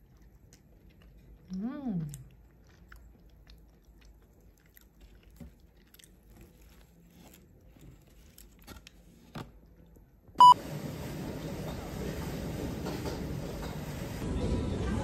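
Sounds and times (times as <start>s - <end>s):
quiet chewing: 0.0s - 10.2s.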